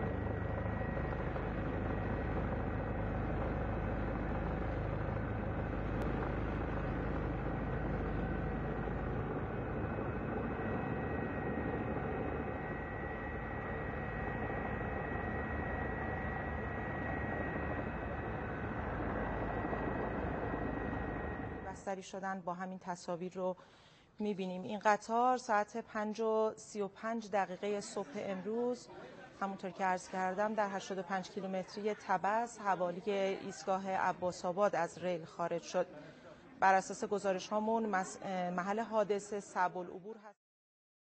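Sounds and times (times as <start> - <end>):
aircraft engine rumble: 0.0 - 21.7
high engine whine: 0.0 - 21.8.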